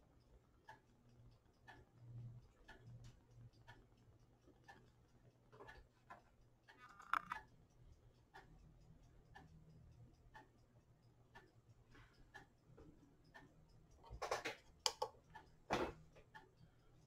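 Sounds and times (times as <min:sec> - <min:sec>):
faint even ticking: 0:00.0 - 0:17.0
test clips clicking: 0:06.7 - 0:07.5.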